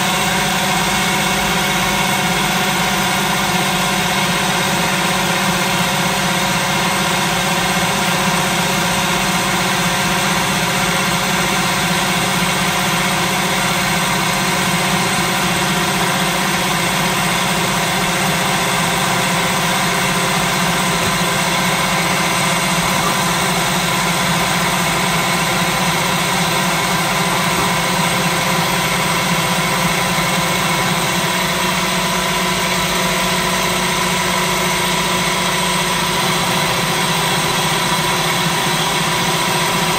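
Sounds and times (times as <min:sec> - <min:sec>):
food processor chopping: 0:00.0 - 0:39.9.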